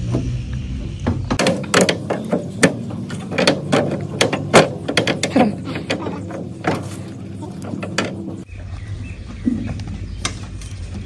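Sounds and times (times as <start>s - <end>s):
metal shelf frame knocking: 1.4s - 8.4s.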